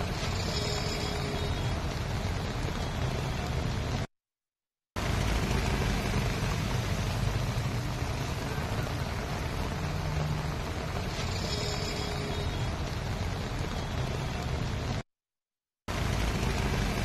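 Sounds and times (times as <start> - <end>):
wash of traffic noise: 0.0 - 4.1, 5.0 - 15.0, 15.9 - 17.0
car and truck engines: 5.0 - 15.0, 15.8 - 17.0.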